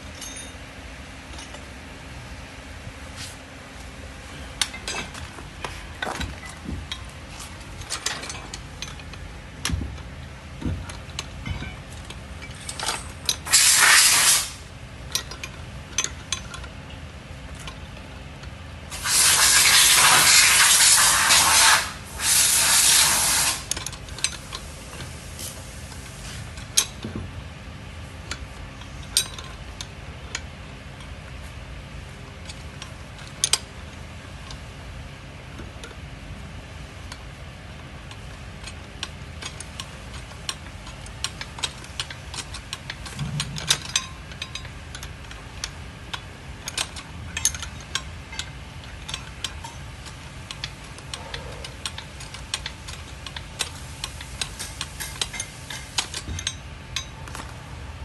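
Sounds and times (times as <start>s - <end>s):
wrench clicking on metal: 12.1s - 16.7s, 18.4s - 25.1s, 38.1s - 57.5s
rushing hiss bursts: 13.5s - 14.6s, 18.9s - 23.7s.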